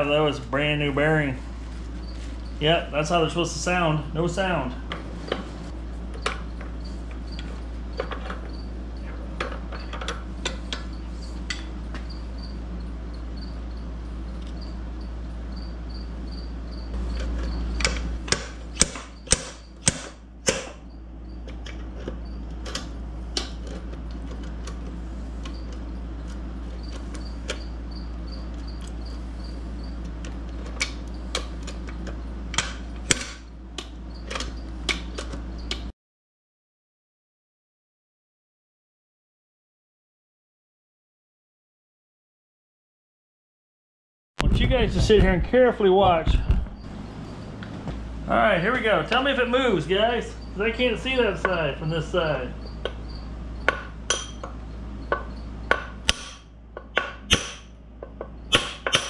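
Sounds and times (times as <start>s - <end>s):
low hum: 44.4s - 59.0s.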